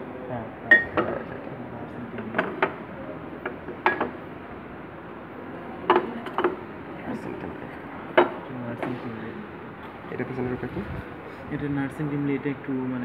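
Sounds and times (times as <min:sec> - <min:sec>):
glass jars clinking: 0:00.7 - 0:01.2.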